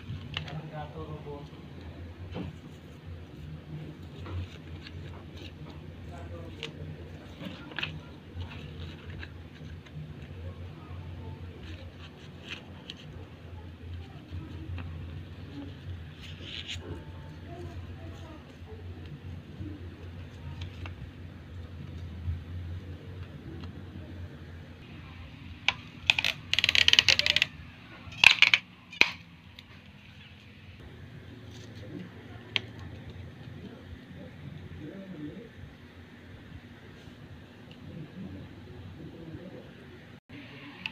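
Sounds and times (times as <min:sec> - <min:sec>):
steady low hum: 0:00.0 - 0:40.9
paper rustling and folding: 0:02.3 - 0:23.8.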